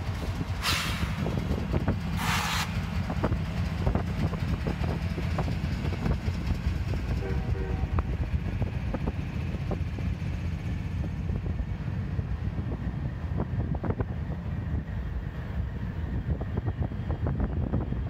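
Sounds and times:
diesel locomotives passing: 0.0 - 18.0
wind buffeting microphone: 0.0 - 18.0.

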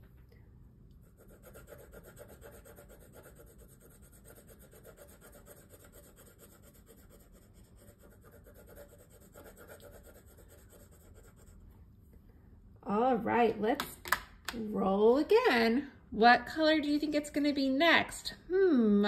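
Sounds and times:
pencil scratching on paper: 1.0 - 11.7.

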